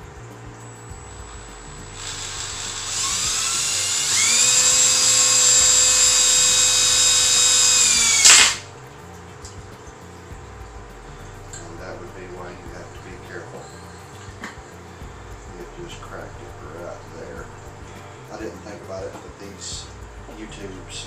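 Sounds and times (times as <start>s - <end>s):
cordless drill motor whine: 0.0s - 8.7s.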